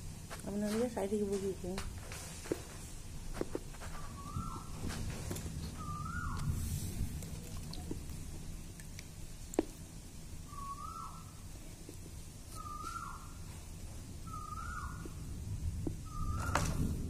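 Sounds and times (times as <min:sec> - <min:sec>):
leaves rustling: 0:00.0 - 0:17.0
bird calling: 0:03.8 - 0:06.6, 0:10.4 - 0:11.5, 0:12.5 - 0:15.3, 0:15.9 - 0:17.0.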